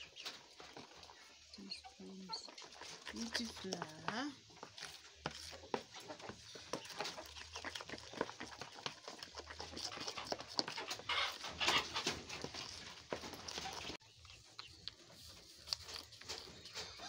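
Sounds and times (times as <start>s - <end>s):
wooden spoon beating batter: 0.1s - 17.0s.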